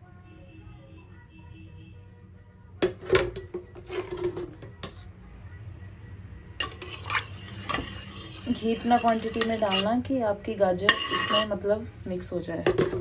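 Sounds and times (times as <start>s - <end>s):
metal ladle clanking in pan: 6.6s - 10.0s, 10.8s - 11.5s.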